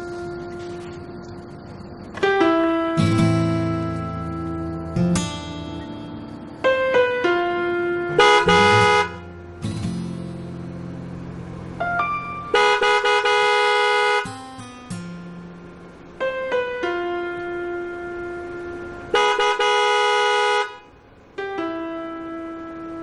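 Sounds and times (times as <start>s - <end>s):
background piano-like music: 0.0s - 12.7s, 14.2s - 19.2s, 20.9s - 23.0s
car horn honks: 8.1s - 9.3s, 12.5s - 14.3s, 19.1s - 20.9s.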